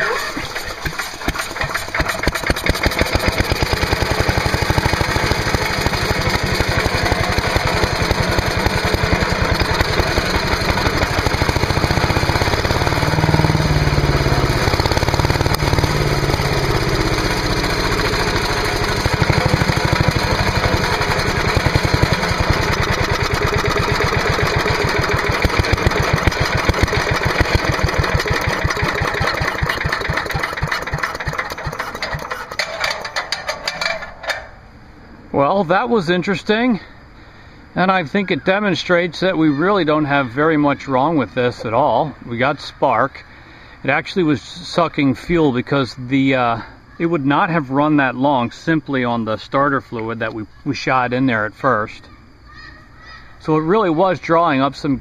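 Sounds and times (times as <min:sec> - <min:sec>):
small engine running: 0:00.0 - 0:34.4.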